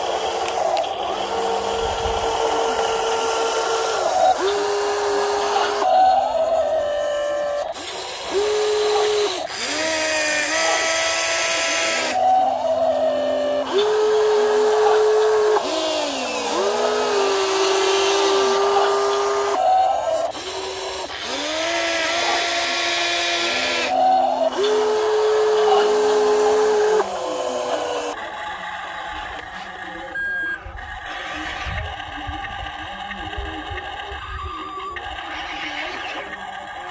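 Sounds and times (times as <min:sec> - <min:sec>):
toy excavator motors whining: 0:00.0 - 0:36.9.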